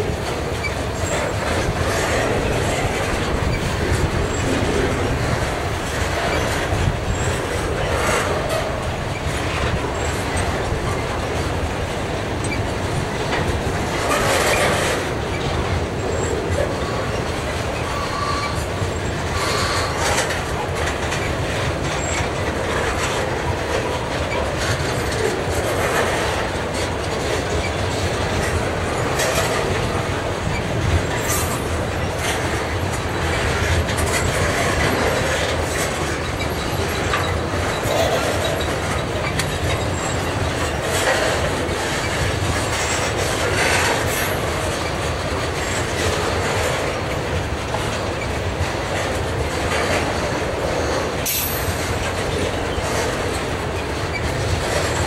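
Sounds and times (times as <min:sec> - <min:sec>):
steel wheels rumbling on rail: 0:00.0 - 0:55.0
wheels clacking over rail joints: 0:00.0 - 0:55.0
wheel squeals: 0:14.0 - 0:20.3, 0:33.2 - 0:45.0.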